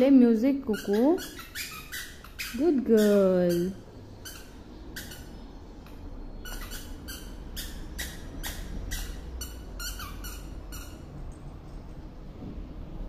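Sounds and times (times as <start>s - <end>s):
squeaky toy squeaking: 0.6s - 5.4s, 6.4s - 11.2s.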